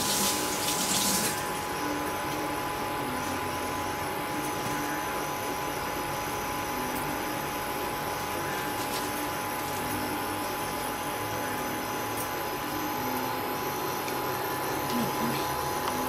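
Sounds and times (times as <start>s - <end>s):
faint high whine: 0.0s - 16.0s
machine hum: 0.0s - 16.0s.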